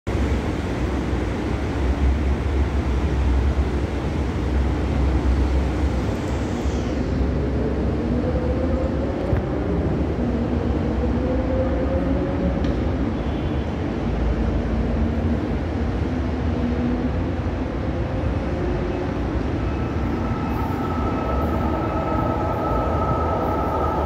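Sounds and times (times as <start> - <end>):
train rumbling: 0.1 - 24.0
train engine note rising: 18.4 - 24.0.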